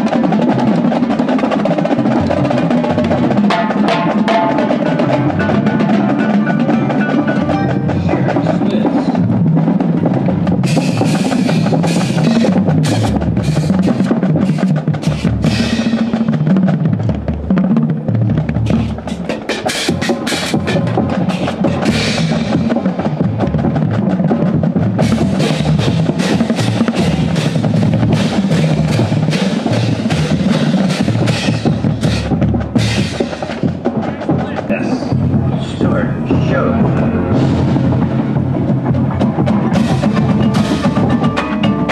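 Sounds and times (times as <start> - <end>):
snare drum rolls: 0.0 - 41.9
bass drums low notes: 34.3 - 41.4.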